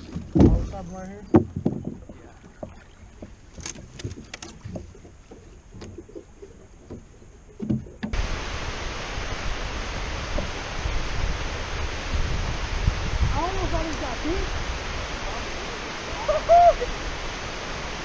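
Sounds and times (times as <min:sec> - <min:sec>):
light knocks on boat: 0:00.0 - 0:00.7, 0:01.3 - 0:06.2, 0:06.8 - 0:08.2
heavy low rumble: 0:08.1 - 0:18.0
water rushing over spillway: 0:08.1 - 0:18.0.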